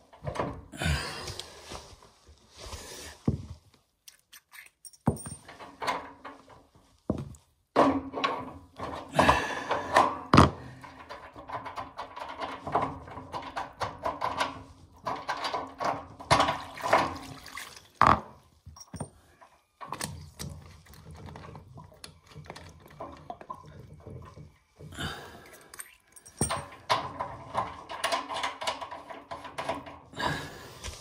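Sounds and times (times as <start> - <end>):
hand tools clinking on metal fittings: 4.1 - 6.3, 18.7 - 19.2, 25.5 - 30.0.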